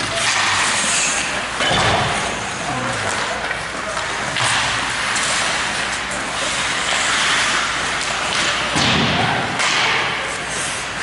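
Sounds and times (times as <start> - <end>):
skate blades scraping ice: 0.0 - 1.5, 2.7 - 8.7.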